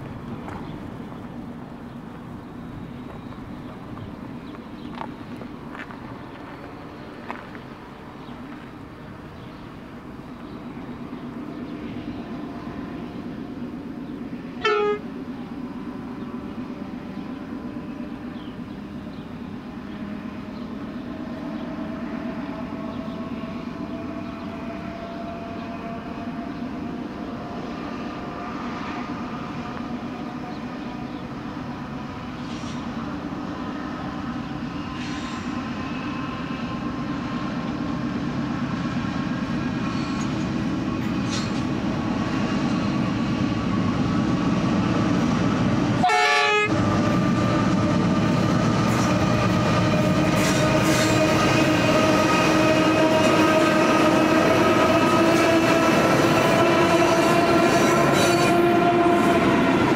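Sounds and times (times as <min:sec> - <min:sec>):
diesel locomotive engines rumbling: 0:00.0 - 0:59.9
train horn toot: 0:14.6 - 0:15.1, 0:46.0 - 0:47.5, 0:49.9 - 0:59.9.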